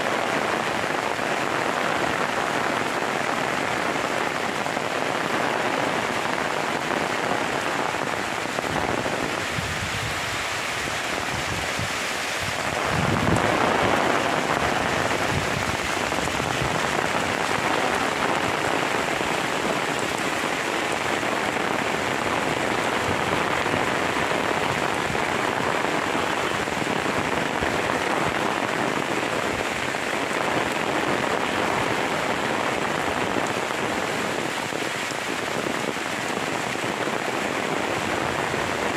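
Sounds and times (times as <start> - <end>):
steady rain falling: 0.0 - 38.9.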